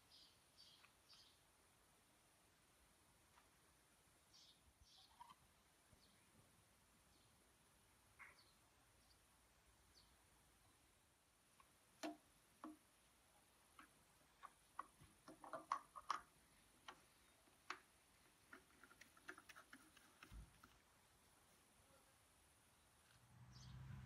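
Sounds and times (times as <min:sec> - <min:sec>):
oil filter clicks and taps: 0:11.6 - 0:12.8.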